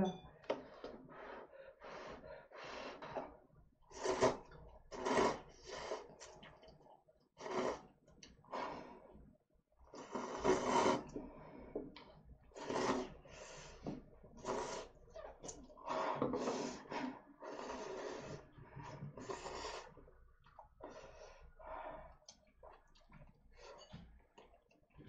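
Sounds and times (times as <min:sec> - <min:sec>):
noodles being slurped: 0:03.9 - 0:06.8, 0:10.0 - 0:11.4, 0:12.5 - 0:13.8, 0:14.4 - 0:24.6.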